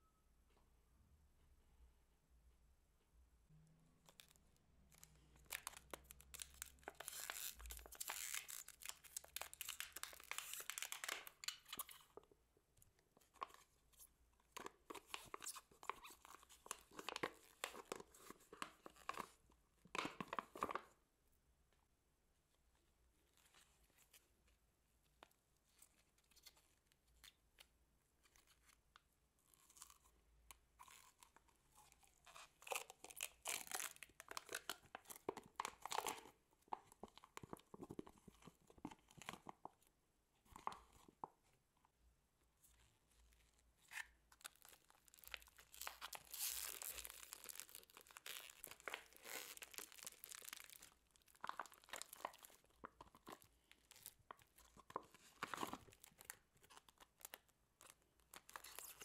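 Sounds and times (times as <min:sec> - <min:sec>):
sticky slime crackling and popping: 0:32.6 - 0:36.2, 0:44.5 - 0:54.2.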